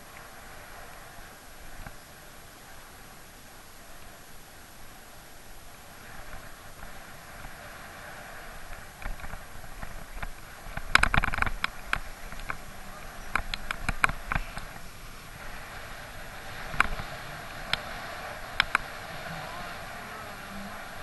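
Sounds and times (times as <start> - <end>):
bicycle wind and road noise: 0.0 - 21.0
sharp clicks and rattles: 9.0 - 12.6, 13.3 - 14.9.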